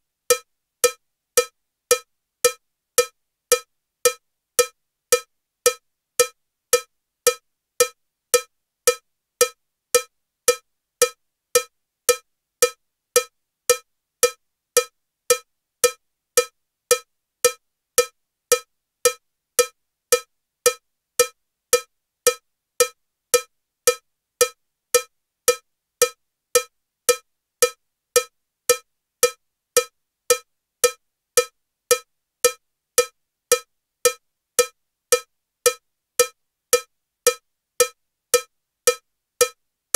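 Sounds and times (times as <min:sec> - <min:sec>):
metronome cowbell ticking: 0:08.4 - 0:39.6.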